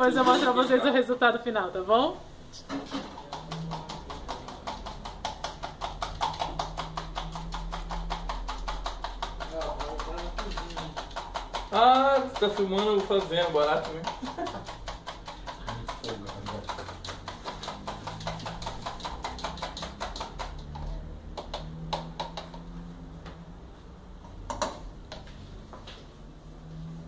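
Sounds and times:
fork beating batter in plastic cup: 2.8 - 22.7
taps and knock: 3.0 - 23.4, 24.5 - 26.0.

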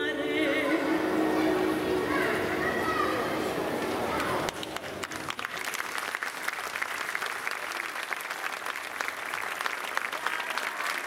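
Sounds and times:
orchestra with soprano: 0.0 - 4.5
audience applause: 4.1 - 11.0.

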